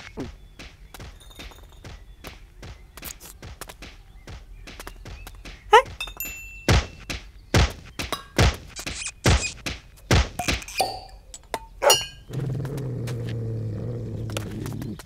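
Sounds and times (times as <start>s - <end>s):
hollow thunks and knocks: 0.2s - 10.7s.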